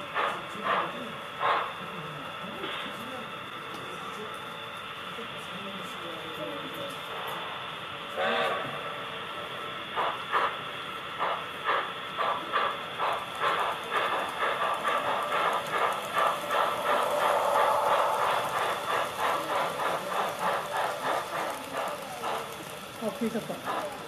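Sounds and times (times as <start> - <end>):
steam locomotive chuffs from speaker: 0.0 - 3.0, 7.1 - 24.0
steady hiss: 9.4 - 24.0.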